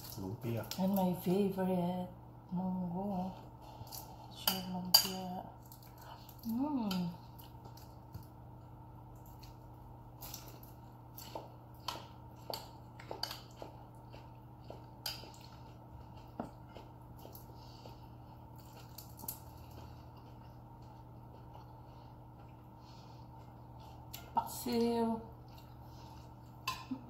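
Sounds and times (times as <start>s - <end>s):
steady low hum: 0.0s - 27.0s
chewing: 10.2s - 24.4s.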